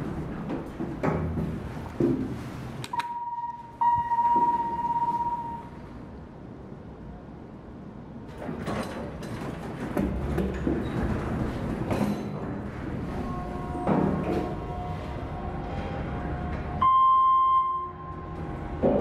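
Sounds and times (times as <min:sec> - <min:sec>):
elevator doors rumbling: 0:00.0 - 0:19.0
elevator button beeps: 0:02.9 - 0:05.8, 0:16.8 - 0:18.4.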